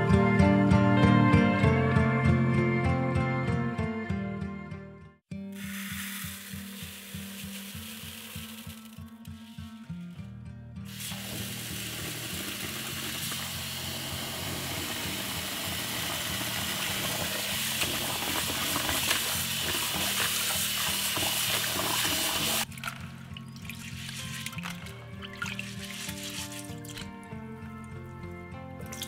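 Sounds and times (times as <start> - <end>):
tap water pouring into bowl: 5.6 - 9.3, 10.9 - 27.3, 28.8 - 29.0
hands rubbing wet rice: 5.6 - 9.9, 23.8 - 24.8, 25.4 - 27.1.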